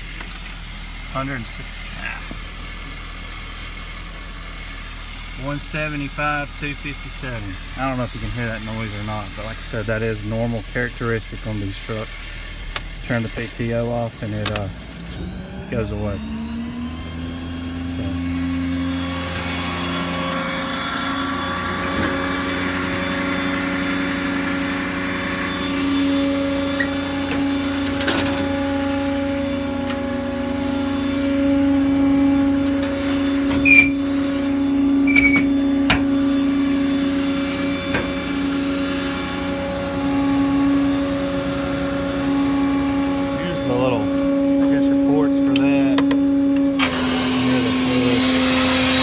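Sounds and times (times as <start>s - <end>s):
diesel engine idling: 0.0s - 48.8s
short high squeaks: 32.9s - 34.2s, 35.0s - 35.6s.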